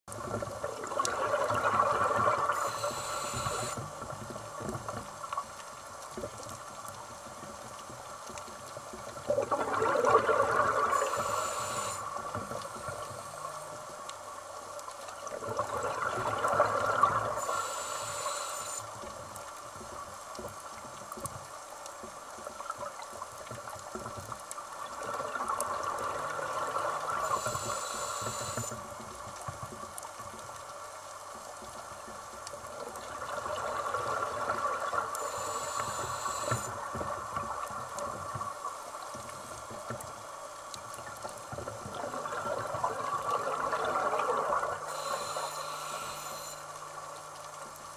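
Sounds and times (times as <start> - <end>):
exhaled bubbles rushing underwater: 0.1 - 5.3, 9.1 - 13.6, 15.2 - 17.6, 24.8 - 28.6, 32.6 - 40.0, 40.9 - 45.4
regulator inhale hiss: 2.3 - 4.0, 10.8 - 13.8, 17.2 - 19.0, 27.0 - 28.9, 35.2 - 36.8, 44.8 - 47.0.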